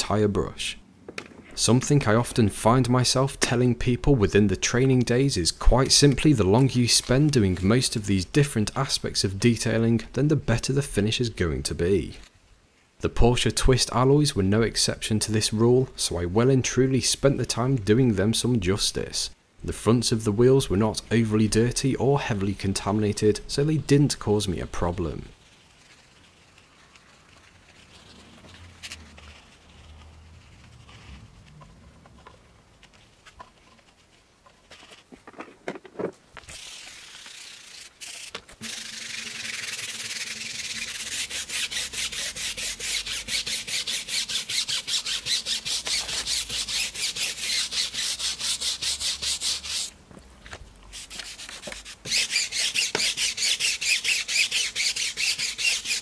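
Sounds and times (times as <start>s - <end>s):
brush scrubbing wet wheel: 36.5s - 49.9s, 50.9s - 56.0s.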